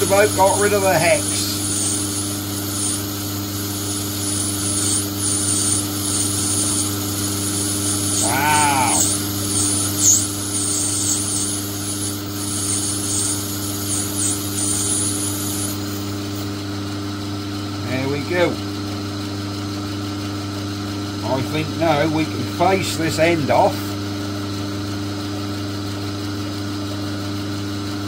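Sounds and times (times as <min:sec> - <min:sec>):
lathe motor hum: 0:00.0 - 0:17.2
thin high-pitched whistles: 0:08.6 - 0:11.6.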